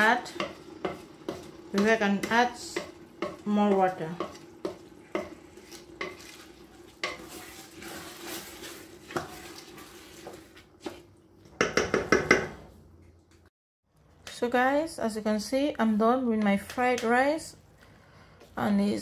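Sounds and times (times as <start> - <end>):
wooden spoon scraping rice in pot: 0.2 - 11.1
spoon knocking on pot: 0.3 - 5.4, 11.6 - 12.6.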